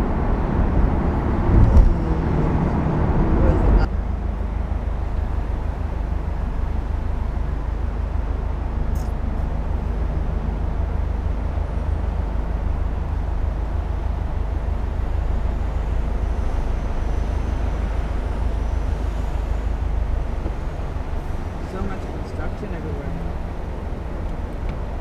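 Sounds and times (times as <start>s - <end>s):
car idling from inside cabin: 12.7s - 25.0s.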